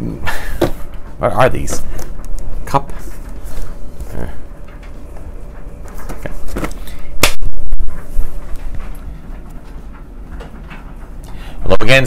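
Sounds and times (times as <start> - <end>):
boxes knocking and rustling: 0.5 - 2.2, 4.6 - 11.0.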